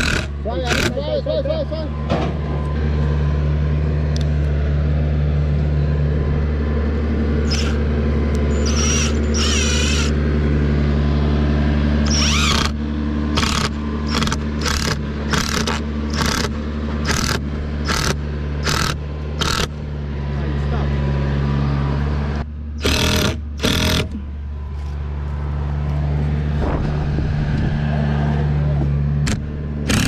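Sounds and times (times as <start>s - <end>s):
tractor engine running: 0.0s - 30.0s
sharp repeating squeak: 7.5s - 7.8s, 8.5s - 10.2s
high metallic squeals: 8.5s - 10.2s.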